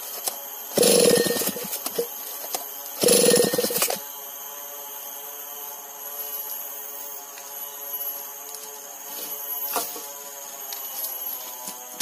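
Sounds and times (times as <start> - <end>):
chainsaw idling: 0.8 - 2.1, 3.0 - 4.0.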